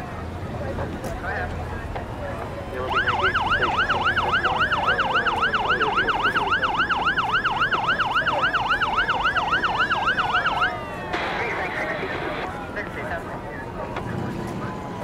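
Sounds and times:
fire engine siren yelping: 2.6s - 15.0s
falling siren tone: 2.8s - 15.0s
steady rushing noise: 10.8s - 14.2s.

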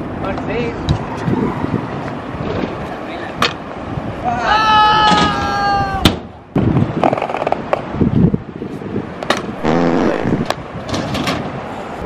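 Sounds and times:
scooter wheels rolling: 7.0s - 7.8s.

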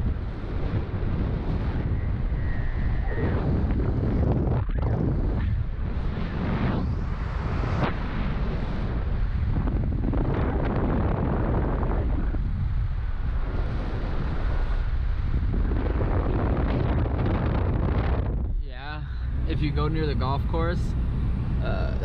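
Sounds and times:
wind buffeting microphone: 0.0s - 22.0s
road noise: 18.4s - 22.0s.

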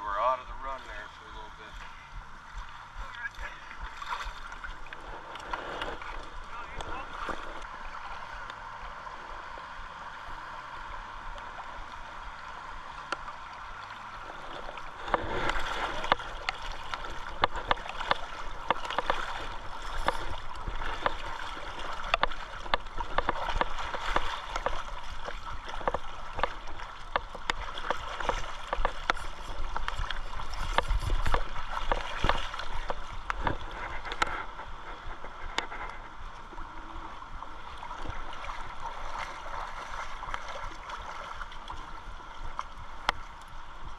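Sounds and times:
river current rushing: 0.0s - 43.9s
rapid ticks and rustles: 0.8s - 9.0s, 10.3s - 43.9s.

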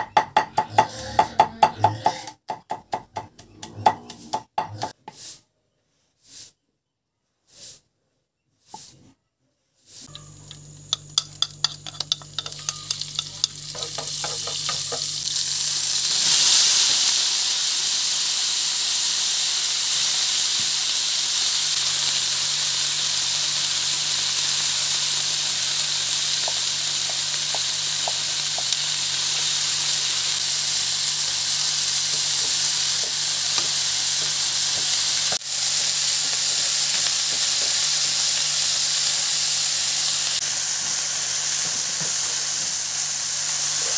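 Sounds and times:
hot oil crackling and popping: 10.0s - 43.9s
loud steady sizzle: 10.0s - 43.9s.

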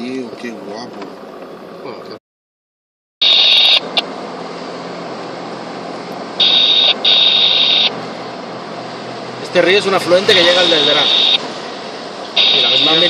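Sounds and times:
car road noise: 0.0s - 2.2s, 3.2s - 13.0s
high-pitched electronic buzz: 3.2s - 3.9s, 6.4s - 8.0s, 10.3s - 11.4s, 12.4s - 13.0s.

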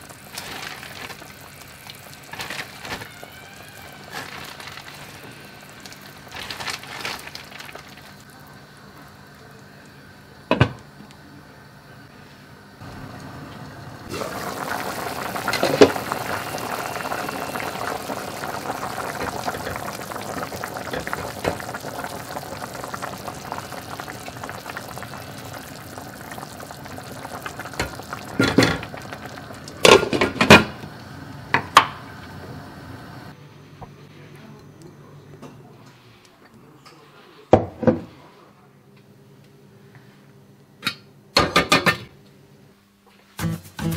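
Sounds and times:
soup boiling in a pot: 0.0s - 33.4s.

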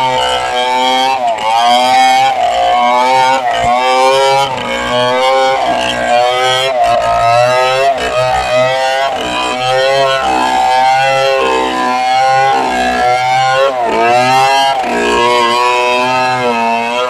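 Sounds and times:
chainsaw ripping a log: 0.0s - 17.0s.

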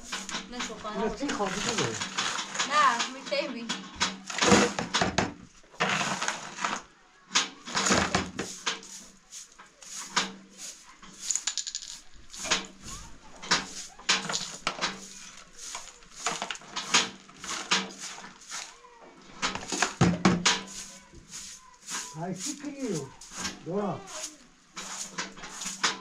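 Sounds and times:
hard objects clinking and knocking: 0.0s - 6.8s, 11.0s - 18.7s.

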